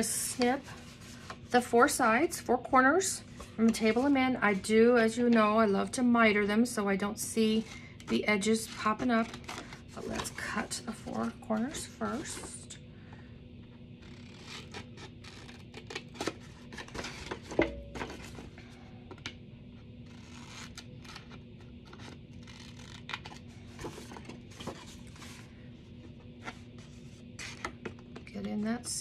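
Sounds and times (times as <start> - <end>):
paper rustling and scraping: 21.9 - 25.6.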